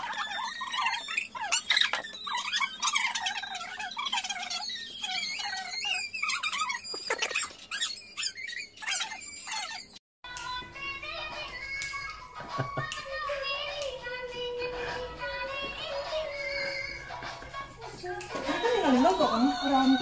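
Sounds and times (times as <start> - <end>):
women chattering and squealing: 18.0 - 20.0.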